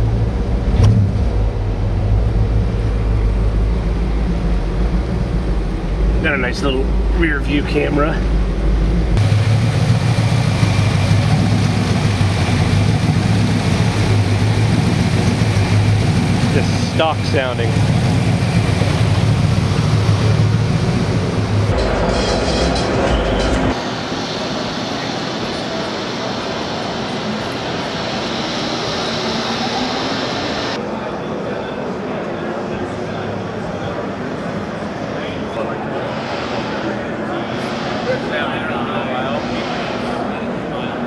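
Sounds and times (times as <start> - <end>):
car engine idling: 0.0 - 22.3
busy exhibition hall din: 0.0 - 41.0.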